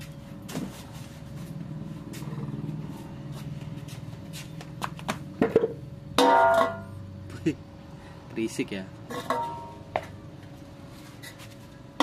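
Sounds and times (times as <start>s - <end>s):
vehicle engine running: 0.0s - 8.4s.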